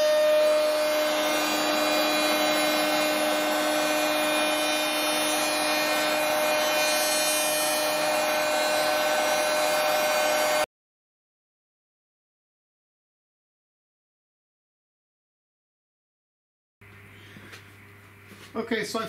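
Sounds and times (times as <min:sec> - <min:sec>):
cutter rubbing on wood board: 0:00.0 - 0:10.7
router spindle high whine: 0:00.0 - 0:10.7.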